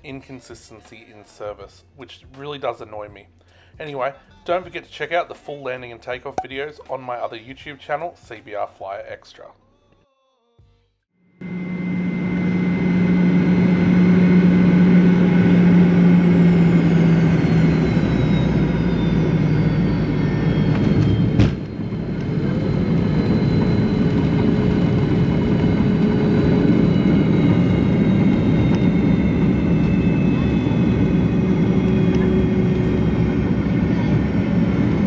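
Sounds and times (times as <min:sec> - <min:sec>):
jet engine whine: 0:11.4 - 0:35.0.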